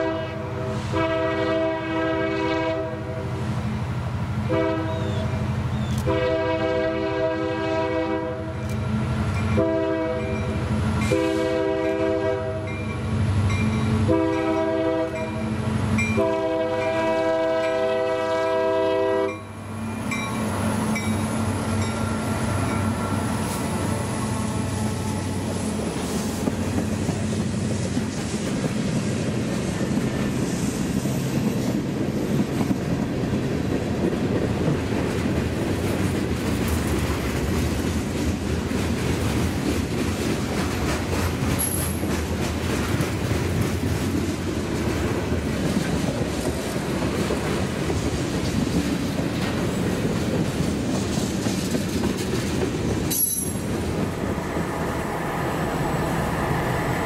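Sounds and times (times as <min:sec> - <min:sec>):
locomotive horn blasts: 0:00.0 - 0:03.2, 0:04.5 - 0:05.4, 0:06.0 - 0:08.7, 0:09.5 - 0:10.4, 0:11.0 - 0:12.8, 0:14.0 - 0:15.5, 0:16.1 - 0:19.6
train wheel and rail noise: 0:00.0 - 0:57.0
locomotive engine: 0:13.0 - 0:31.5, 0:51.9 - 0:57.0.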